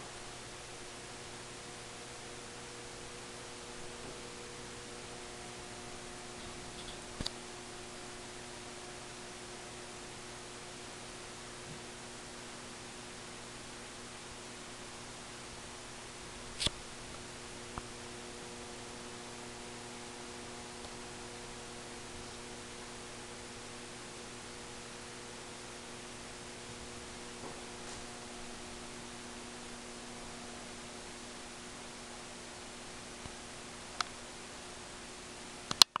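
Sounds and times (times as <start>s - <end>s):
faint electrical hum: 0.0s - 36.0s
small click: 6.4s - 7.4s, 16.6s - 16.8s, 34.0s - 34.2s, 35.7s - 36.0s
sharp clicks: 35.7s - 36.0s.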